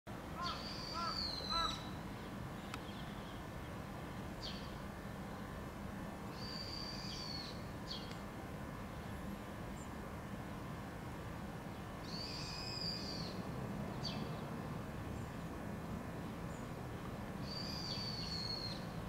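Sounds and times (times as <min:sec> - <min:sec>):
steady low background hum: 0:00.1 - 0:19.0
birds calling: 0:00.4 - 0:03.5.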